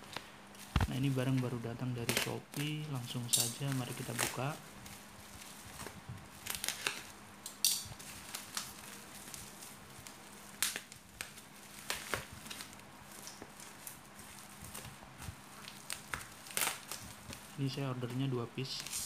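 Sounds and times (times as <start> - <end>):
packing tape ripping: 0.0 - 17.8, 18.6 - 19.0
plastic wrapping crinkling: 0.0 - 19.0.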